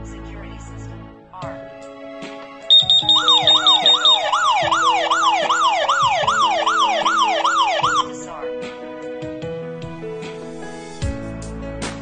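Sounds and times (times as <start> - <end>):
background music: 0.0 - 12.0
high-pitched beeps: 2.7 - 8.1
alarm siren sweeping up and down: 2.7 - 8.2.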